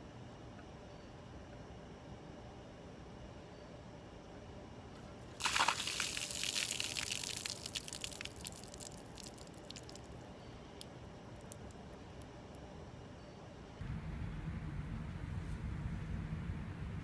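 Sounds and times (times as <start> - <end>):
water splashing onto paving: 5.3 - 10.2
water dripping: 5.3 - 12.3.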